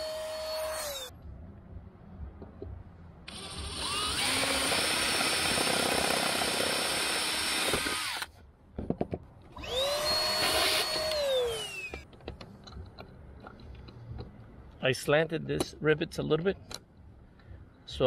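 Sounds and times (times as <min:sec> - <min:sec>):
power drill whirring: 0:00.0 - 0:01.1, 0:03.3 - 0:08.3, 0:09.6 - 0:12.0
drill clicks: 0:03.3 - 0:08.3, 0:09.6 - 0:12.1.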